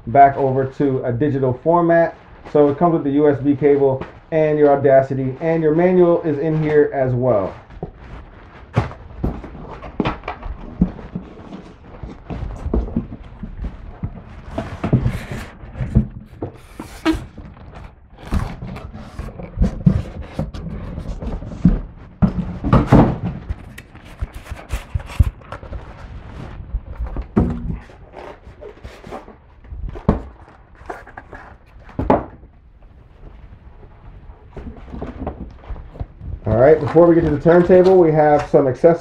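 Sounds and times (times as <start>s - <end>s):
styrofoam scraping cardboard: 0.2s - 32.2s, 33.0s - 39.0s
wrapping rustling: 0.3s - 22.7s, 23.4s - 39.0s
thunks and knocks: 12.3s - 23.7s, 26.9s - 28.0s.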